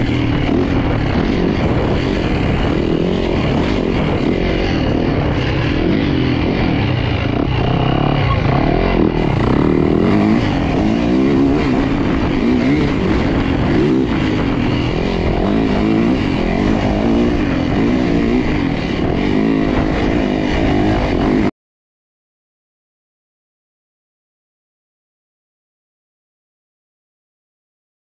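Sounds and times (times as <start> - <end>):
dirt bike engine revving: 0.0 - 21.5.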